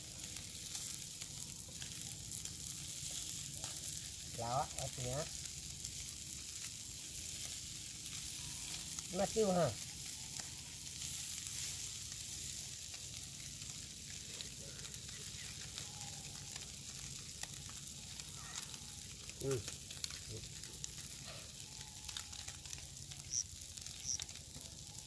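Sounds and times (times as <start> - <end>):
fish sizzling in a pan: 0.0 - 25.0
small pops and ticks: 12.8 - 25.0.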